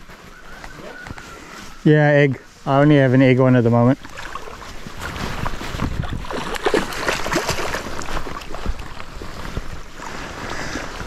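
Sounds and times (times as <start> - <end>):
fish splashing in water: 4.0 - 11.0.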